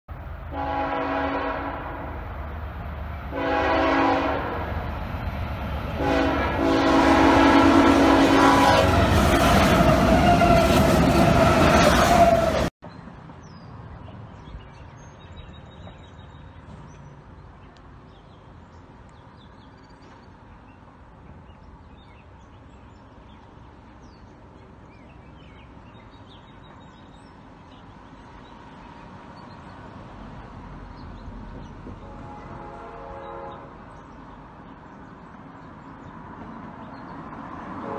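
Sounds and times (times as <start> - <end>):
train approaching rumble: 0.1 - 37.9
small birds chirping: 12.9 - 29.9.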